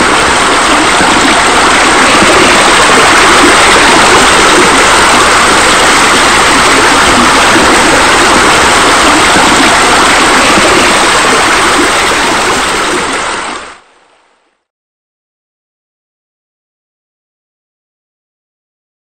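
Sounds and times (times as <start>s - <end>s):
water running and splashing: 0.0s - 13.7s.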